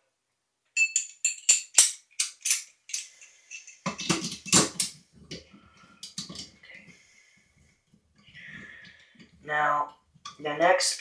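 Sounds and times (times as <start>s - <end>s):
small parts clicking and clinking: 0.8s - 5.1s, 6.0s - 6.6s
parts knocking and scraping: 0.8s - 6.9s.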